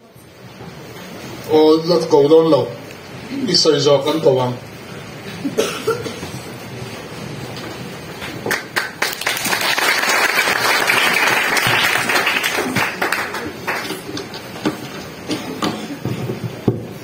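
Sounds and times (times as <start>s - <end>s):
audience applauding: 8.2s - 14.6s.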